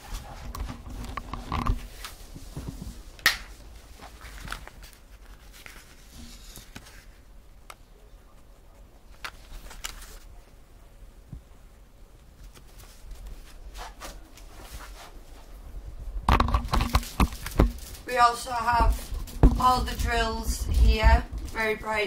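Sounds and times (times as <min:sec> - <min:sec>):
plastic film rustling and crinkling: 0:00.0 - 0:07.3, 0:09.1 - 0:10.4, 0:12.2 - 0:15.6, 0:16.3 - 0:22.0.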